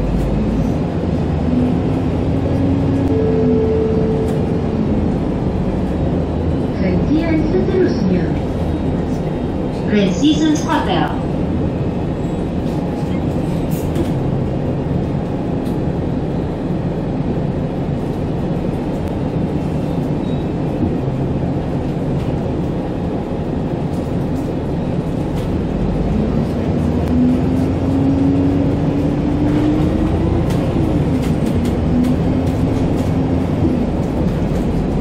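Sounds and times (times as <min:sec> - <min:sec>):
drivetrain whine: 0:00.0 - 0:10.3
bus engine and road rumble: 0:00.0 - 0:35.0.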